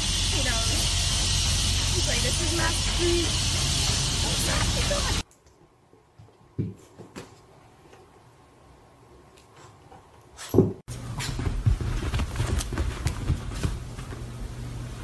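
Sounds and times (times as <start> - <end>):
parrot scrambling and flapping: 11.2 - 14.3.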